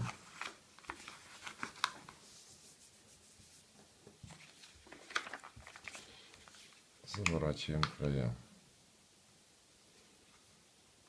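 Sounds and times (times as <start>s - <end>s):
paper crackling and rustling: 0.0s - 2.6s, 4.2s - 7.9s.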